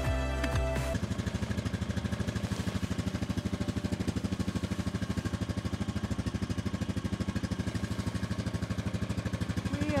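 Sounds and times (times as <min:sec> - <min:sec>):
atv engine idling: 0:00.0 - 0:10.0.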